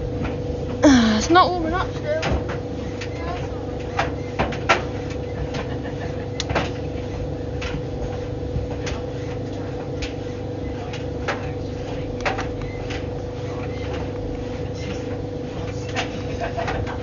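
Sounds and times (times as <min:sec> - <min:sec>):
tumble dryer motor hum: 0:00.0 - 0:17.0
load tumbling clicks and taps: 0:10.8 - 0:14.4.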